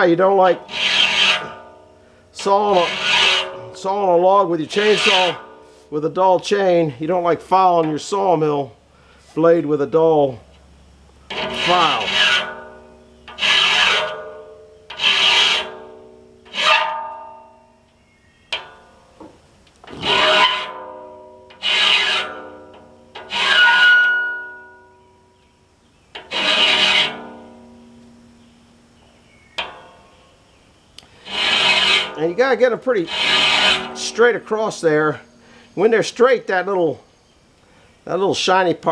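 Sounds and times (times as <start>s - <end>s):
hand file rasping on saw blade: 0.2s - 1.7s, 2.4s - 4.0s, 4.7s - 5.5s, 11.3s - 15.8s, 16.5s - 17.0s, 20.0s - 20.8s, 21.6s - 22.5s, 23.2s - 24.2s, 26.2s - 27.3s, 31.2s - 34.5s
saw blade ringing metallically: 11.3s - 17.8s, 20.0s - 25.2s, 26.3s - 28.5s, 31.2s - 35.9s.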